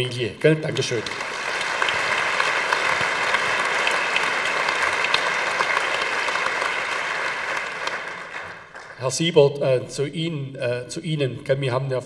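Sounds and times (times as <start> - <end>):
audience applause: 0.7 - 9.0.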